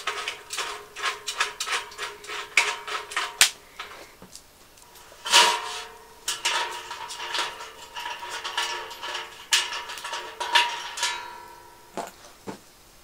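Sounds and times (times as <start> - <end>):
metal parts clinking on steel bowl: 0.0 - 4.0, 4.9 - 12.0
steel bowl ringing from strikes: 5.4 - 12.0.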